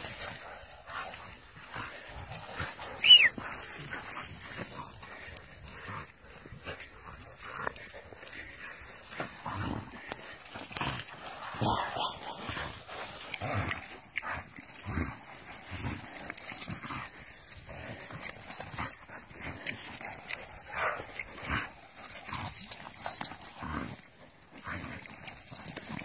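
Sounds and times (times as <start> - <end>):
paws shuffling on leaves: 0.0 - 18.2
dogs growling: 0.0 - 26.0.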